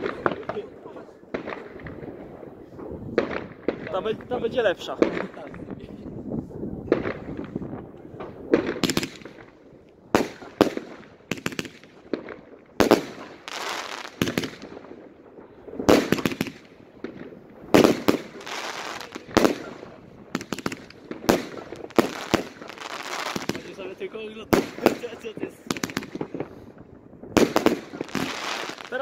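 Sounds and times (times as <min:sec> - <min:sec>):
fireworks bangs: 0:00.0 - 0:29.0
crackling hiss of bursting shells: 0:08.5 - 0:09.6, 0:10.2 - 0:15.1, 0:15.7 - 0:26.8, 0:27.4 - 0:29.0.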